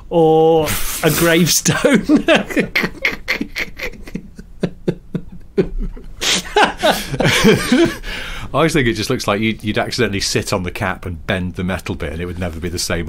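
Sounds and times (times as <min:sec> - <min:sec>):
men laughing: 0:01.1 - 0:08.4.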